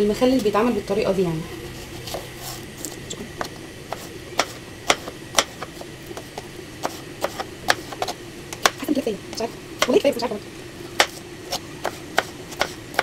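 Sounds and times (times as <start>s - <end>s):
knife tapping cutting board: 11.0s - 11.2s, 11.8s - 13.0s.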